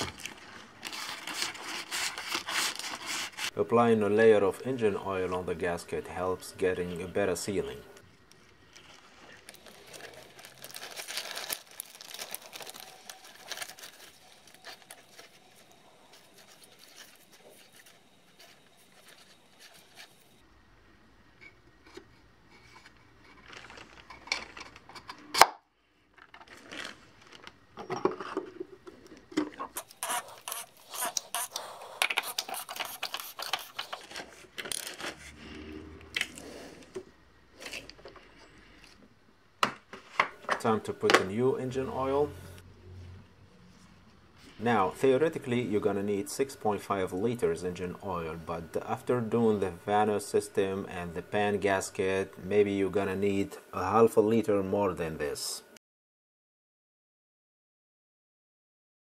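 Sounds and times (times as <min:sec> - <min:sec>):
plastic sheeting crinkling: 0:08.4 - 0:20.3, 0:23.2 - 0:24.6, 0:26.4 - 0:27.6.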